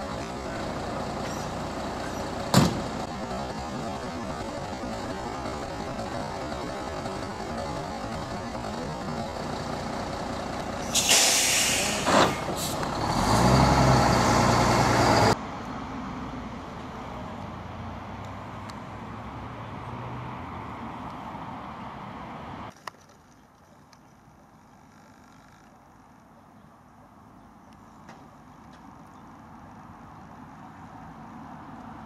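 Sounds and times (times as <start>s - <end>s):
diesel engine running loudly: 0.0s - 15.4s
faint outdoor background noise: 0.0s - 32.0s
air brakes hissing: 10.8s - 12.9s.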